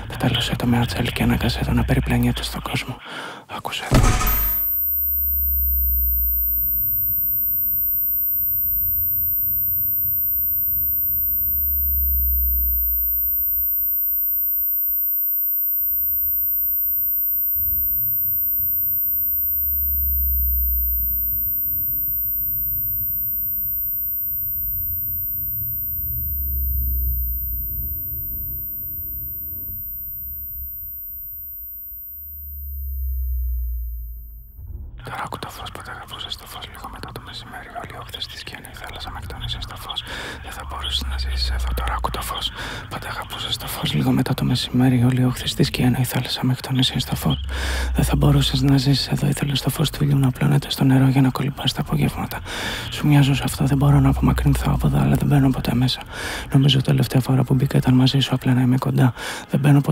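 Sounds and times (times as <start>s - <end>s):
thin high-pitched tone: 3.9s - 34.6s.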